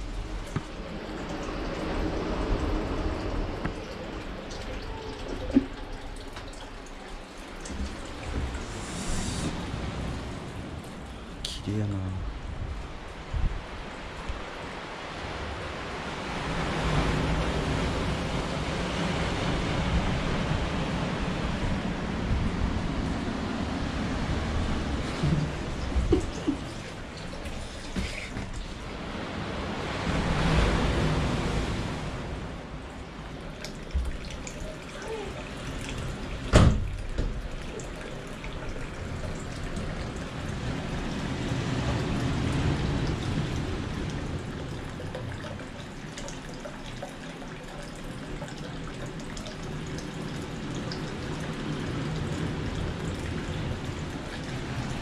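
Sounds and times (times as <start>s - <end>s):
water trickling from a spout: 0.0s - 11.6s, 25.0s - 28.9s, 32.8s - 55.0s.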